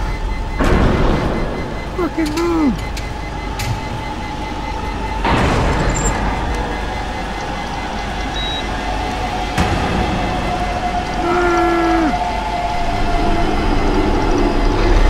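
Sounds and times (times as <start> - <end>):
mechanical rumble: 0.0 - 15.0
steady high tone: 0.0 - 15.0
short high beep: 8.3 - 8.6.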